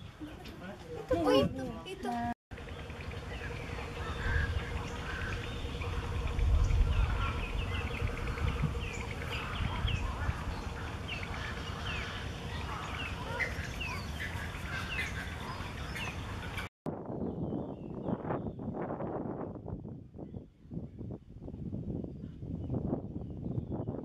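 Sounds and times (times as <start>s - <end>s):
water birds calling: 0.0s - 16.7s
wind rumbling on microphone: 2.8s - 24.0s.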